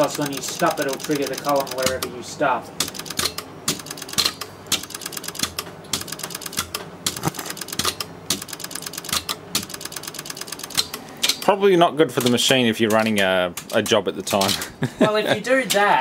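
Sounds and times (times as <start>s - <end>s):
relays clicking rapidly: 0.0s - 2.2s, 2.8s - 14.7s.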